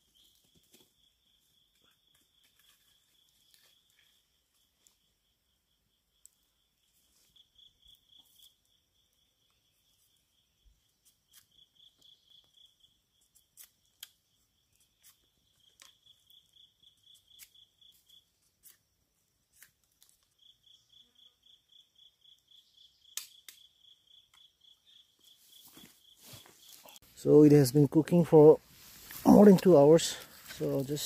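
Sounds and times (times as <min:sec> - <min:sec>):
insect chirping: 0:00.0 - 0:31.0.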